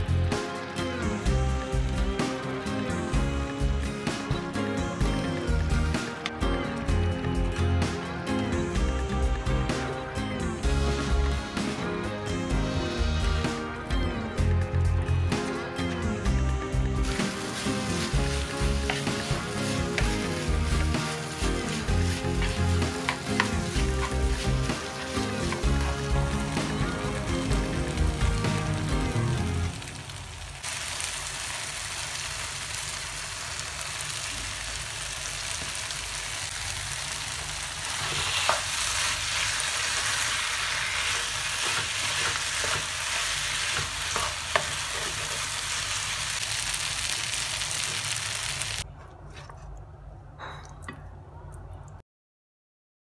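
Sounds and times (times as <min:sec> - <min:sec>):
chicken sizzling in oil: 0:17.0 - 0:48.8
spatula scraping a pan: 0:37.9 - 0:39.1, 0:40.7 - 0:45.5.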